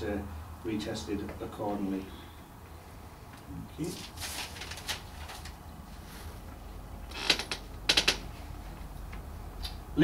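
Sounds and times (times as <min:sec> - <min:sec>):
low room hum: 0:00.0 - 0:10.0
papers rustling: 0:03.8 - 0:06.5.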